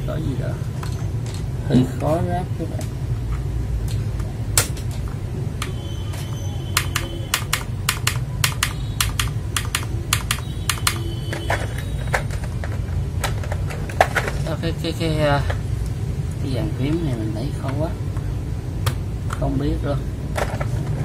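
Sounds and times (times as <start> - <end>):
mechanical keyboard keys clacking: 6.8 - 14.0.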